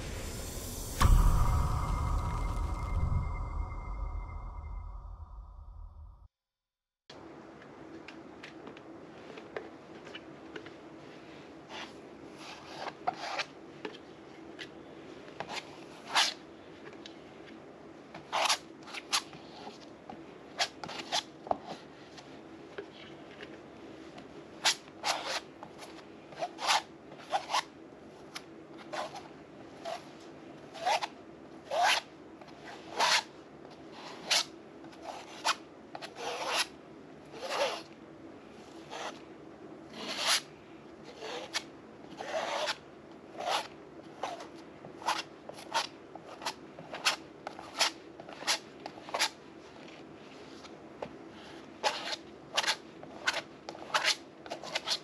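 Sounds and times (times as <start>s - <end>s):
palette knife scraping canvas: 24.6s - 27.7s, 28.8s - 38.0s, 38.8s - 39.2s, 39.9s - 49.4s, 51.4s - 55.0s.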